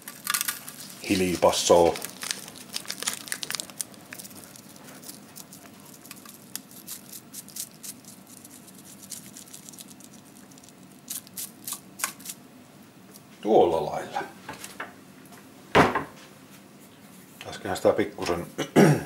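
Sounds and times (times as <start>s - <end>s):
seasoning sachet crinkling: 0.0s - 12.4s.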